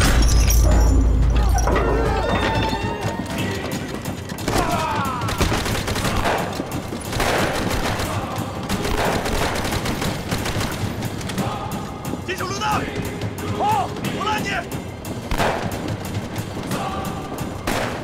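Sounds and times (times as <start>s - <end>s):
rapid gunshots: 3.4s - 11.8s, 15.2s - 18.0s.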